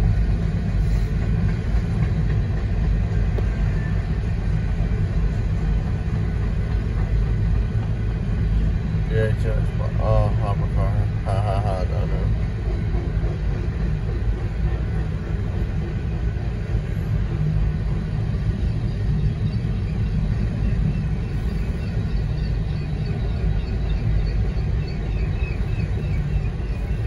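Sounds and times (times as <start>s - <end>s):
train rolling rumble: 0.0s - 27.0s.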